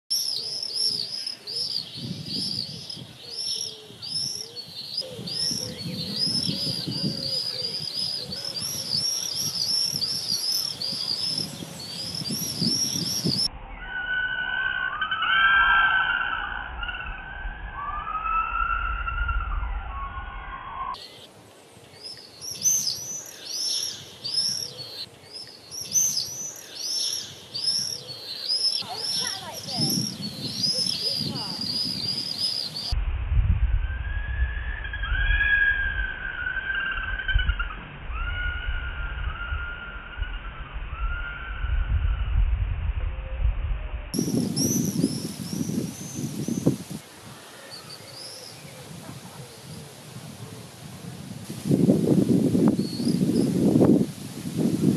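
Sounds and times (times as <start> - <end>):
swifts screaming: 0.1 - 21.3, 22.0 - 33.0.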